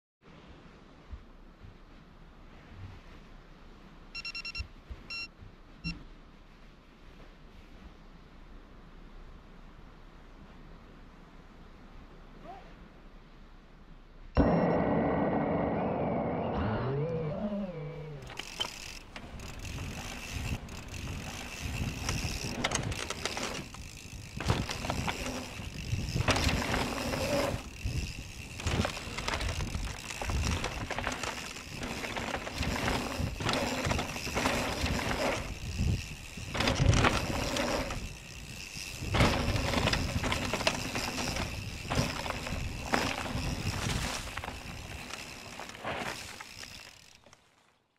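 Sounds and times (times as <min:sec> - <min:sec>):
drone propellers whining: 0:14.4 - 0:19.3
wind on microphone: 0:24.0 - 0:31.9.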